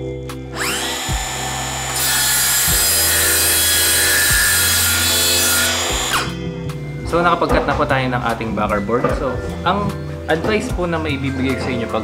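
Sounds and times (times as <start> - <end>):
circular saw cutting plywood: 0.5 - 6.4.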